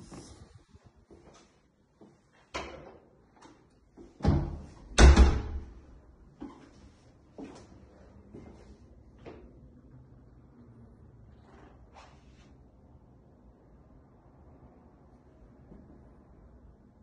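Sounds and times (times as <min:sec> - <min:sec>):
wooden door opening and shutting: 0:04.2 - 0:05.7
heavy door thump: 0:04.2 - 0:05.8.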